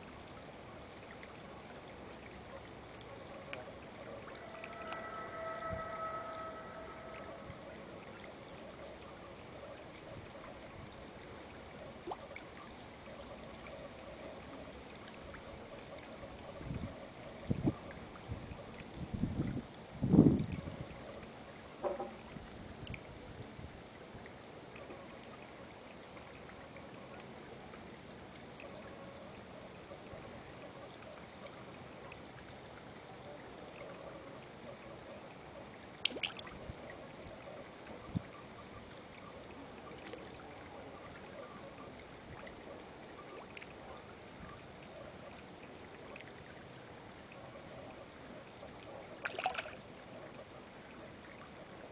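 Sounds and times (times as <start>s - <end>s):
trickle of running water: 0.0s - 51.9s
small plops at water surface: 36.0s - 36.6s, 49.2s - 49.9s.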